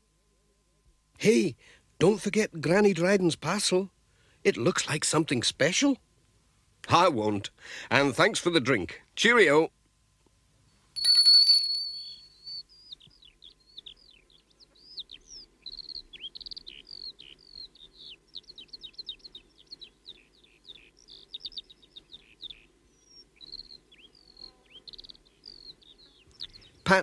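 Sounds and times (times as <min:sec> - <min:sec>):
small birds chirping: 0:12.1 - 0:27.0.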